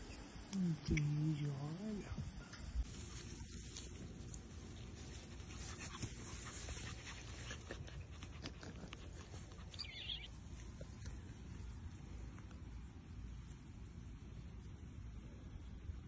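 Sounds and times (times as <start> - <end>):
rustling in grass: 2.8 - 12.8.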